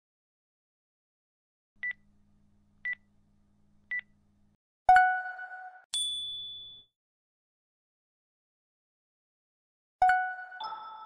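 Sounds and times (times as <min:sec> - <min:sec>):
ringing chime: 0:06.0 - 0:06.9.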